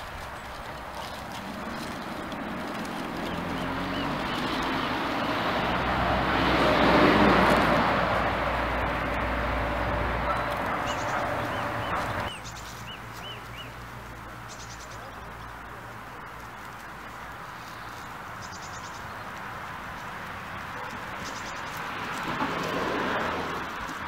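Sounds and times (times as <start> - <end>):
vehicle passing: 0.0 - 24.0
bird chirps: 10.2 - 13.8, 17.5 - 19.2.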